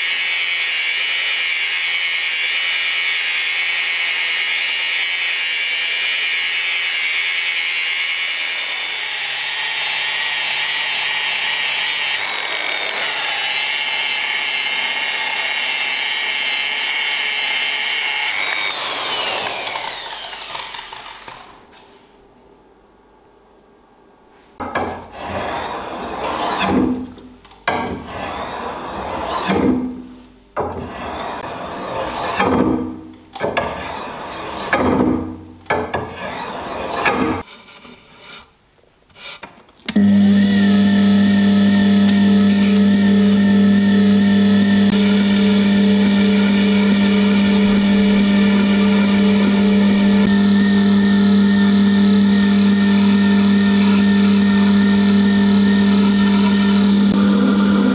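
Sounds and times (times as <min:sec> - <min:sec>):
sharpening machine motor hum: 0:08.4 - 0:21.4, 0:39.9 - 0:57.9.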